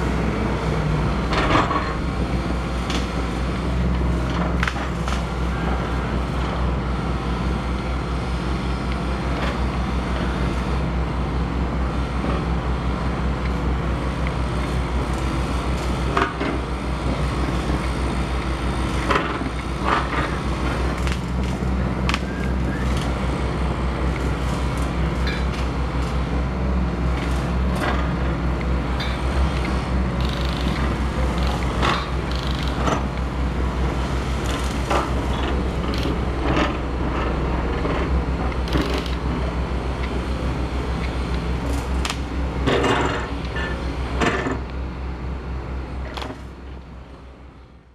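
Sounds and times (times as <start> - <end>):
toy excavator motor hum: 30.2 - 32.9.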